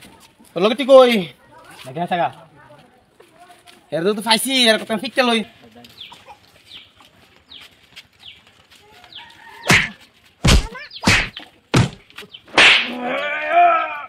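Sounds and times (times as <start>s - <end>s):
chickens clucking: 6.0s - 7.6s
hand slapping face: 9.7s - 12.0s, 12.6s - 13.0s.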